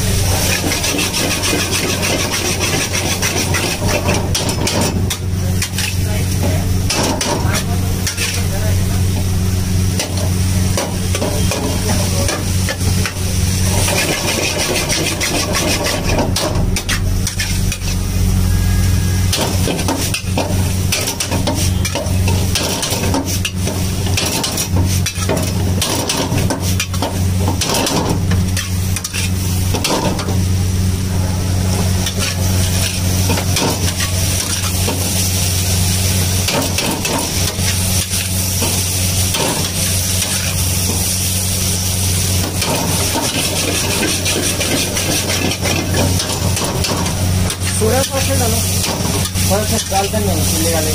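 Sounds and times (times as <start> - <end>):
food sizzling in a wok: 0.0 - 50.9
metal spatula scraping a pan: 0.4 - 6.0, 10.7 - 30.2, 42.4 - 50.1
low hum: 16.6 - 20.9.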